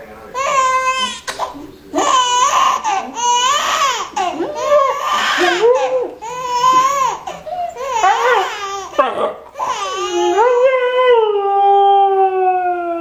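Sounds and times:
infant crying: 0.4s - 1.3s, 1.9s - 9.0s, 9.6s - 11.0s.

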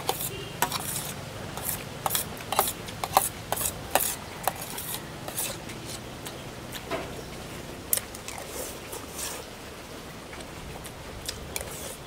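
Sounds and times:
utensils clicking on dishes: 0.0s - 6.0s
crunching and chewing: 7.9s - 9.5s, 10.3s - 12.0s.

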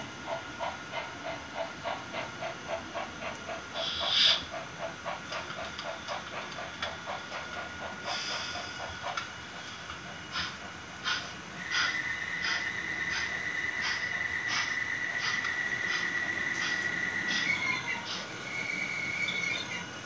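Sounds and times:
model steam locomotive chuffing: 0.0s - 20.0s
steam hiss burst: 7.2s - 17.5s.

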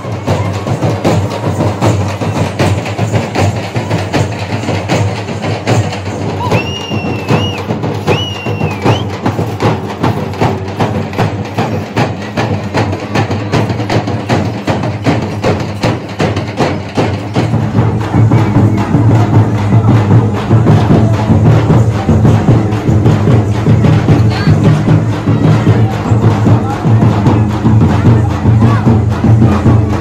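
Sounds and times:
fast frame drumming: 0.0s - 30.0s
shrill whistle notes: 6.4s - 9.2s.

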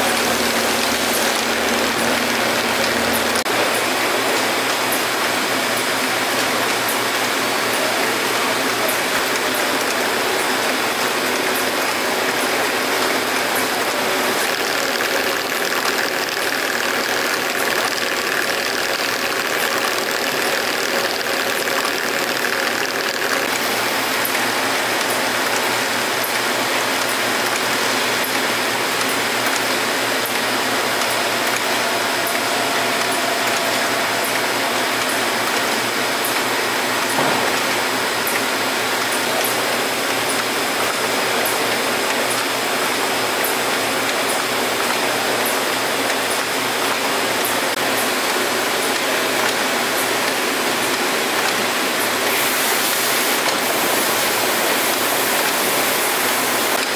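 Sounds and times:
conveyor machinery clatter: 0.0s - 56.9s.

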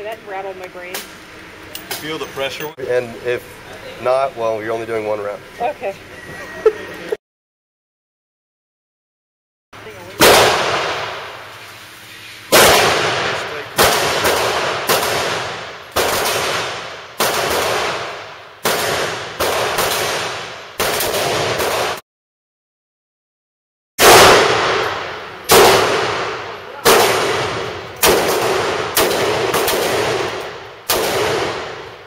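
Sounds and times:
handgun shots echoing: 24.1s - 31.9s.

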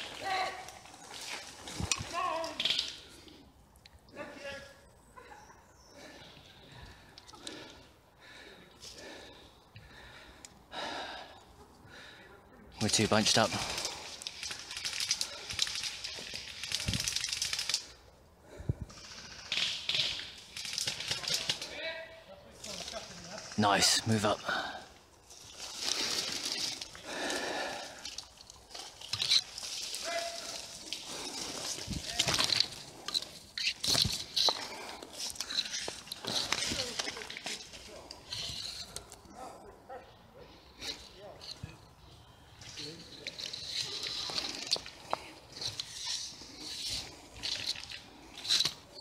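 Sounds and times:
branches brushing and rustling: 0.0s - 3.1s, 25.1s - 27.1s, 28.2s - 39.3s.

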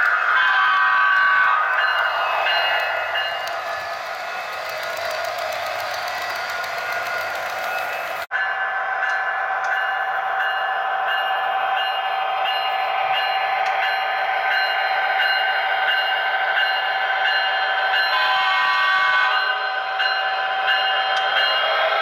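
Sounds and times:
wheel and rail noise: 0.0s - 8.3s.

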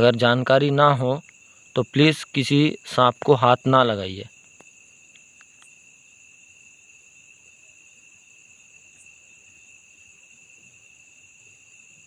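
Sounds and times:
crickets trilling: 0.0s - 12.0s.

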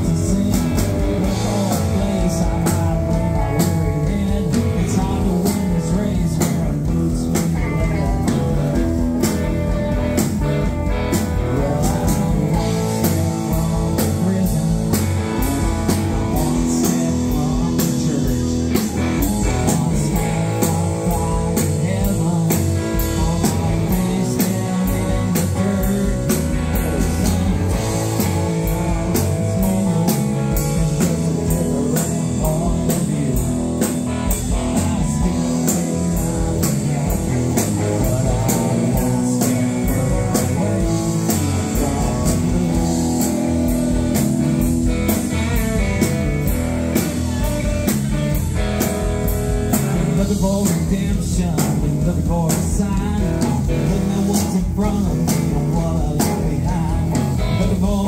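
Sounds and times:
live rock band playing: 0.0s - 58.0s.

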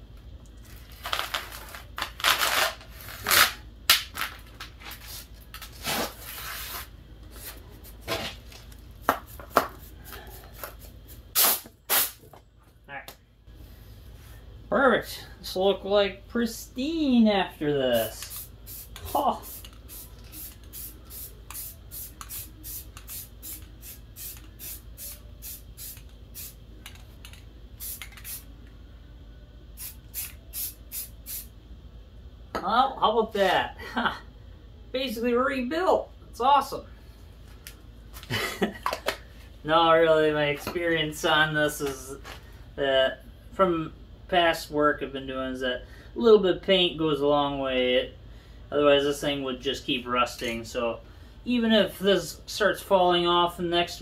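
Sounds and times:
spray can hissing bursts: 11.3s - 12.2s, 18.2s - 26.6s, 27.8s - 28.4s, 29.8s - 31.5s.

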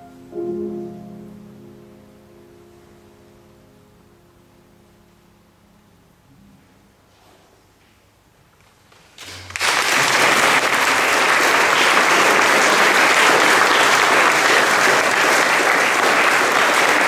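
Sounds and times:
audience applause: 9.2s - 17.0s.

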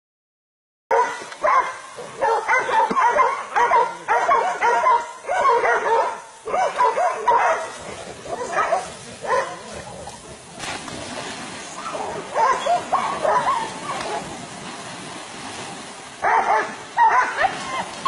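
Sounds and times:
hunting dogs barking: 0.9s - 10.4s, 11.8s - 14.4s, 16.2s - 17.8s.

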